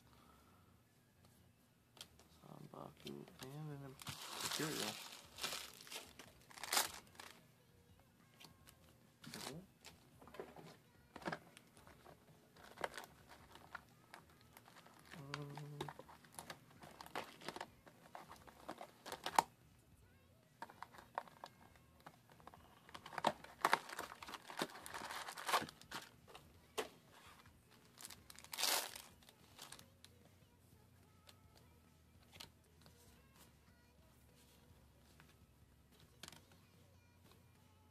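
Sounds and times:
cards rustling: 0:02.0 - 0:07.4, 0:08.4 - 0:19.5, 0:20.6 - 0:29.9
foil packs crinkling and tearing: 0:04.0 - 0:07.4, 0:22.9 - 0:26.1, 0:27.9 - 0:29.8.

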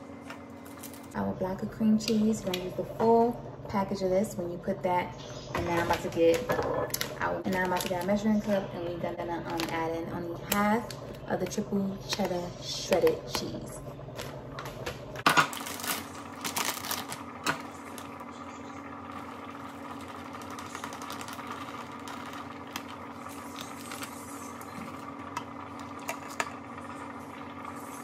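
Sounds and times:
steady two-tone hum: 0:00.0 - 0:28.0
plastic bag crinkling: 0:00.5 - 0:01.2, 0:06.9 - 0:08.6, 0:15.2 - 0:26.4.

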